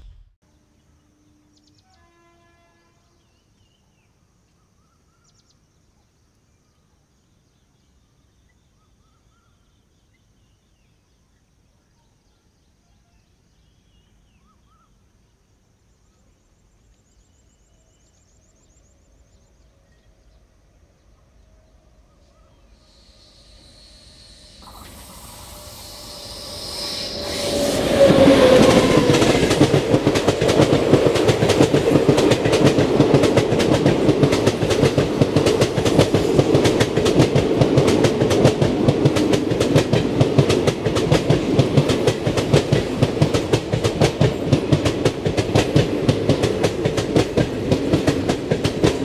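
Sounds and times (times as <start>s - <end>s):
low rumble of train: 16.1s - 49.0s.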